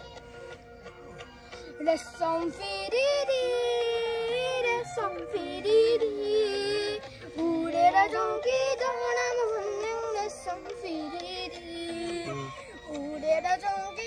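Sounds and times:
child singing: 1.8s - 14.0s
second voice singing along: 12.1s - 12.6s.

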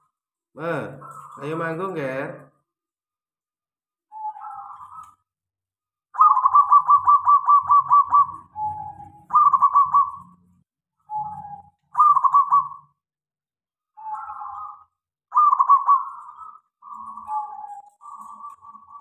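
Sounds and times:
dove cooing: 4.1s - 5.2s, 6.2s - 10.4s, 11.1s - 13.0s, 14.0s - 19.0s.

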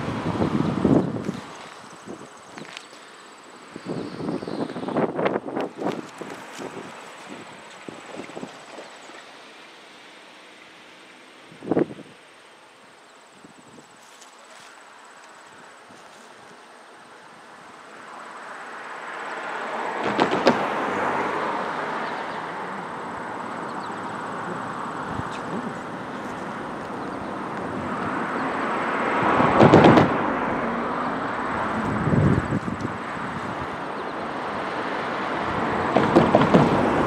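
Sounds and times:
diesel locomotives running: 0.0s - 37.0s.

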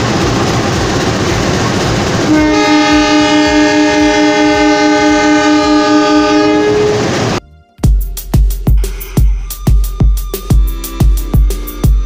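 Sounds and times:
locomotive horn blast: 2.3s - 7.4s.

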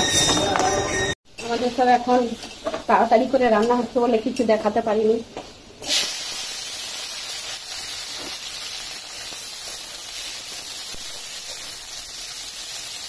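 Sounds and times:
vegetables sizzling in hot oil: 1.4s - 13.0s.

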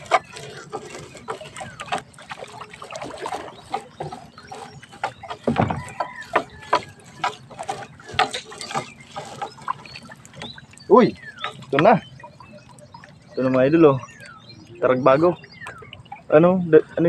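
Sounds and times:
wet net dragging against boat hull: 0.0s - 12.9s.

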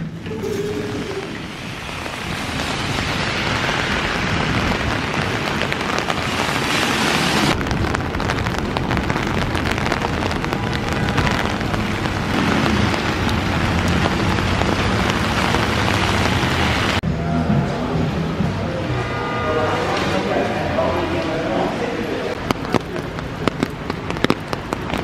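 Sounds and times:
passing traffic on wet street: 0.0s - 25.0s
rain pattering on umbrella: 0.3s - 17.0s, 22.3s - 25.0s.

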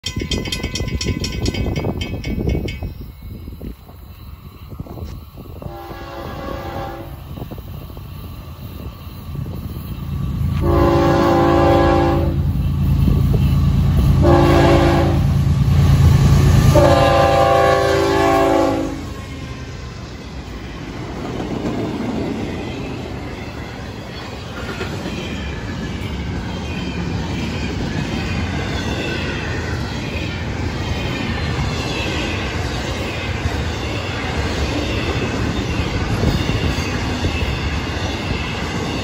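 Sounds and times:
diesel locomotive rumble: 4.6s - 39.0s
locomotive horn blasts: 5.6s - 7.2s, 10.6s - 12.5s, 14.2s - 15.3s, 16.7s - 19.2s.

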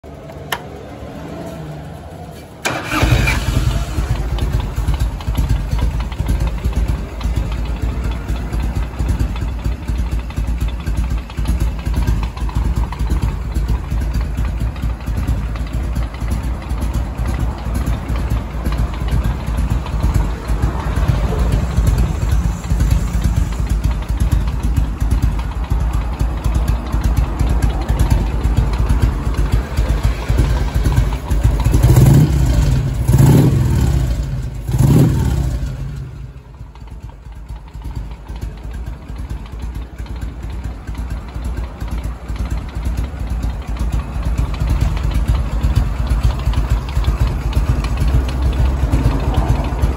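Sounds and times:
motorcycle engine idling: 0.0s - 49.9s
motorcycle starter cranking: 2.6s - 7.6s, 40.4s - 49.2s.

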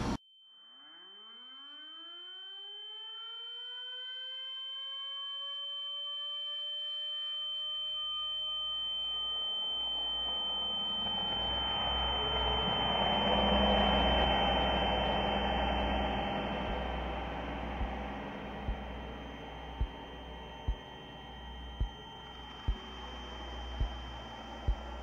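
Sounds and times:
eerie high-pitched drone: 8.1s - 25.0s
rising siren-like wail: 9.7s - 25.0s
low rumble: 10.6s - 25.0s.

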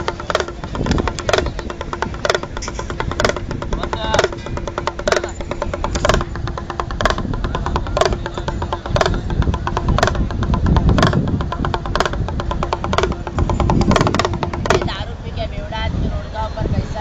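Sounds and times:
loud drum music: 0.0s - 15.0s.

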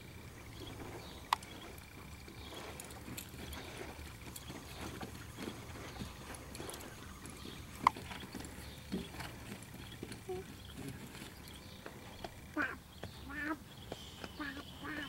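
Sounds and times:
hoofbeats in soft dirt: 0.0s - 15.0s.

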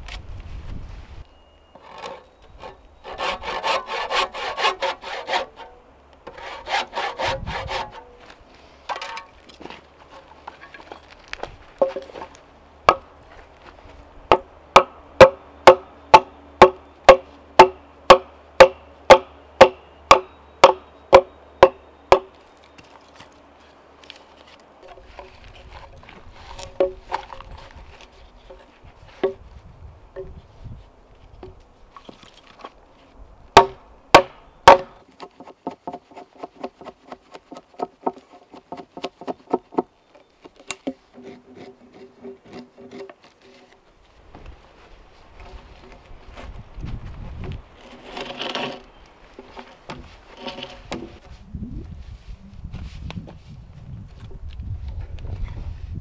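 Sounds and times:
hand tool striking wood: 14.3s - 22.4s, 24.8s - 27.5s, 28.5s - 29.4s, 33.6s - 43.8s, 49.4s - 51.3s.

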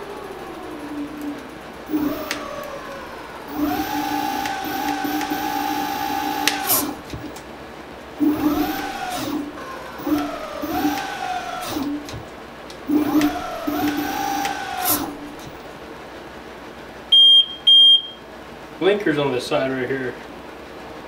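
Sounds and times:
electric scooter motor whining: 0.0s - 7.4s, 8.2s - 15.7s.

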